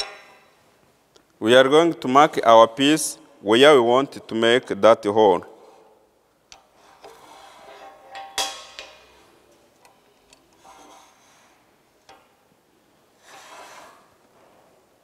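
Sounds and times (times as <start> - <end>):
soft rubbing scrapes: 6.7 - 8.1, 10.6 - 11.7, 13.2 - 14.9.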